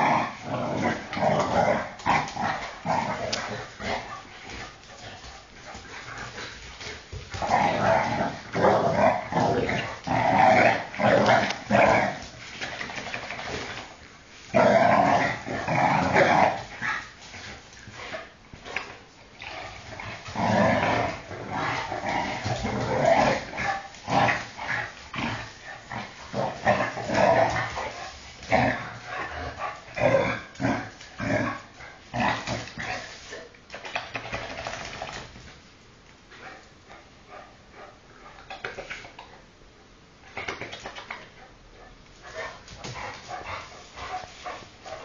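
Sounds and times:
dogs growling: 0:00.0 - 0:33.3.

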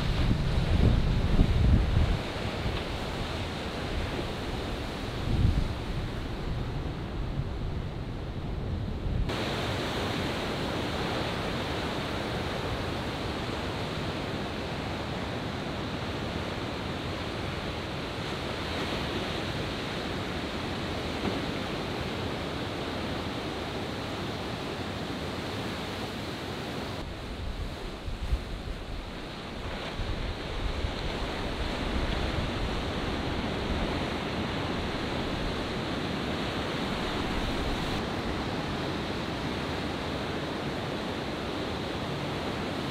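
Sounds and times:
wind buffeting microphone: 0:00.0 - 0:09.6
ocean waves breaking: 0:00.0 - 0:42.9.

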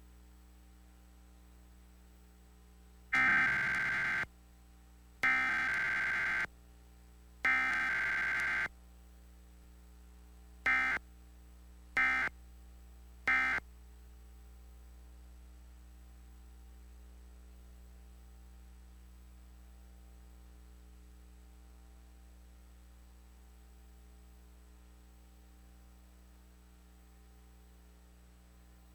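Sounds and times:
faint steady hum: 0:00.0 - 0:28.9
shrill data tone bursts: 0:03.2 - 0:04.3, 0:05.2 - 0:06.5, 0:07.5 - 0:08.7, 0:10.7 - 0:11.0.

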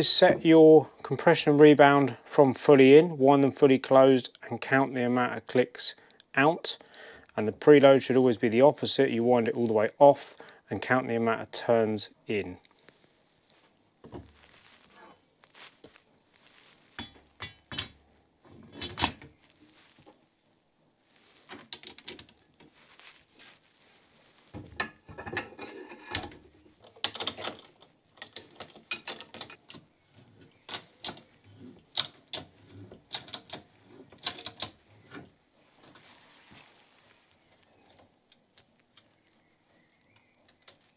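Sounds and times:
metal parts clicking and clattering: 0:21.4 - 0:22.8, 0:24.8 - 0:29.8.

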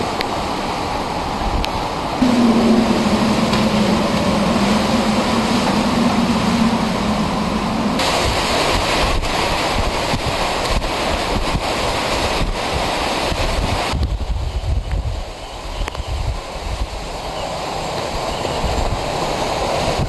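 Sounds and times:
strong wind and rain: 0:00.0 - 0:20.0
steady low hum: 0:02.2 - 0:08.7.

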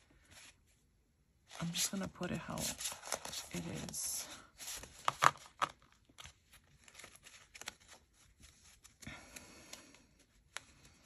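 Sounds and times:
plastic envelopes clicking: 0:04.7 - 0:08.0.

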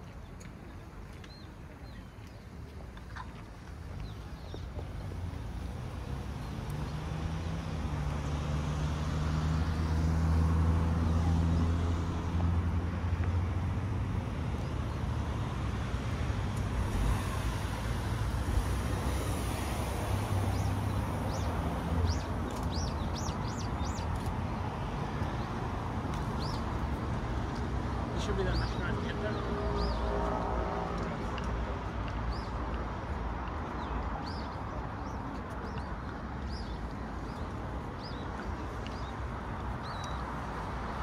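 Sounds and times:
small birds chirping: 0:20.4 - 0:30.0, 0:33.6 - 0:41.0.

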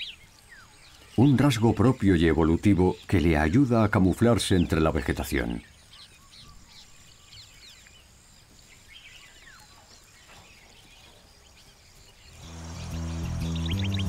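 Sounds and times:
birds chirping and whistling: 0:00.0 - 0:08.1, 0:08.7 - 0:14.0
faint outdoor hiss: 0:00.0 - 0:14.0
background music with low notes: 0:12.4 - 0:14.0.

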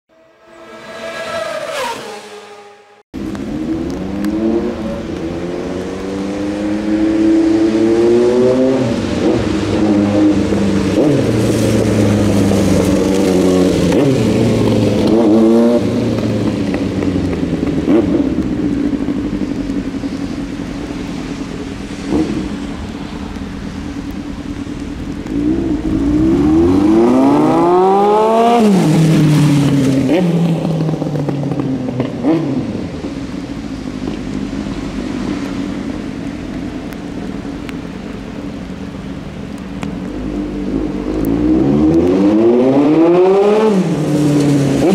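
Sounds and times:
motorcycle engine revving: 0:00.2 - 0:33.2, 0:40.2 - 0:44.9.

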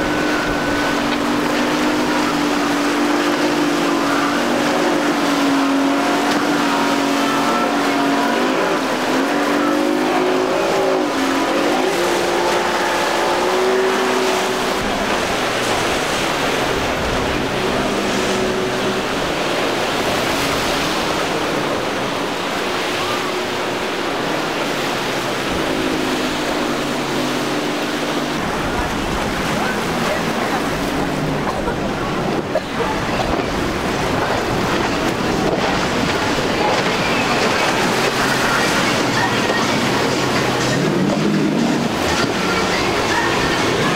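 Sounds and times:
hiss of wake and waves: 0:00.0 - 0:43.9
outboard motor drone: 0:00.0 - 0:43.9.

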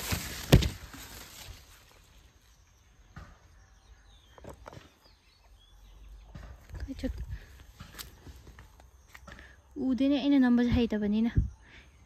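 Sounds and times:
leaves brushing against phone: 0:00.0 - 0:02.2.

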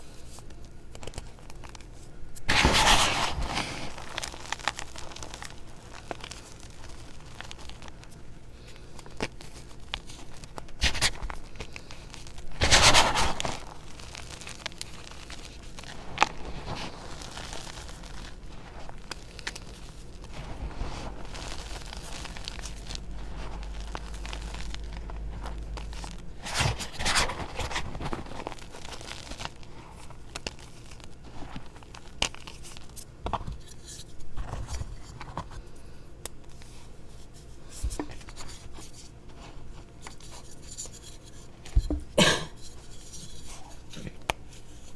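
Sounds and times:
chalk powder crunching: 0:02.5 - 0:33.9.

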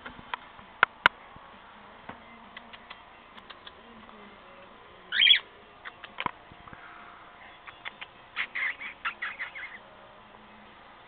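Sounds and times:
sharp clicks and taps: 0:02.6 - 0:03.8
cockatiel warbling chirp: 0:05.1 - 0:06.2, 0:07.4 - 0:09.8.

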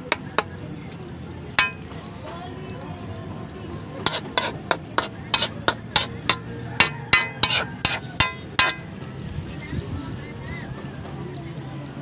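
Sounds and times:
metal spoon scraping wok: 0:00.0 - 0:00.6, 0:01.6 - 0:01.9, 0:04.0 - 0:08.9.

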